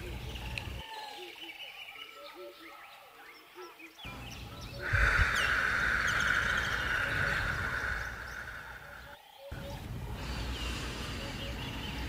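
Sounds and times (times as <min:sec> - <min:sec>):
small birds chirping: 0:00.0 - 0:12.0
steady hiss: 0:04.8 - 0:09.2.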